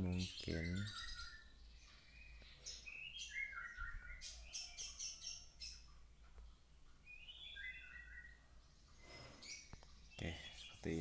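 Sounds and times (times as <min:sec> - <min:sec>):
birds chirping faintly: 0:00.0 - 0:11.0.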